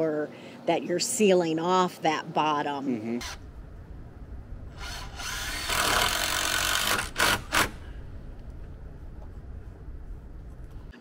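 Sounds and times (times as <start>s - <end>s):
steady low rumble: 3.2s - 11.0s
power tool running: 4.7s - 8.1s.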